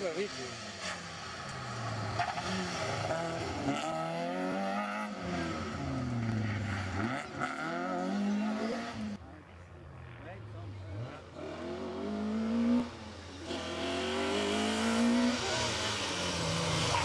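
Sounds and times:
rally car engine revving: 0.0 - 9.3, 10.1 - 17.0.

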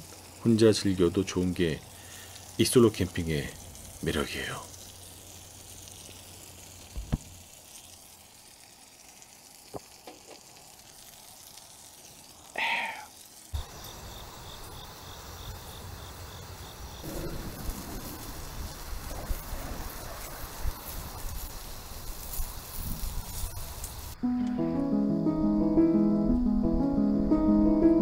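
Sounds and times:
food sizzling: 0.0 - 27.2.

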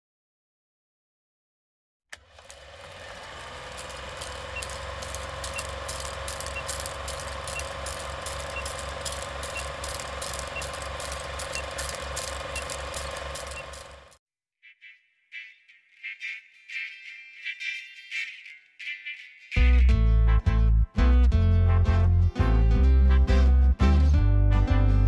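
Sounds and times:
film projector whirring and clicking: 2.1 - 14.2.

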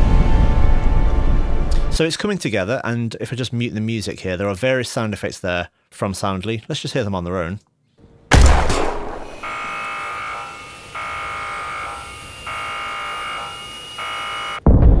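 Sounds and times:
loud bang: 8.3 - 9.8
harsh electric buzz: 8.8 - 14.6
faint high ringing: 9.2 - 14.5.

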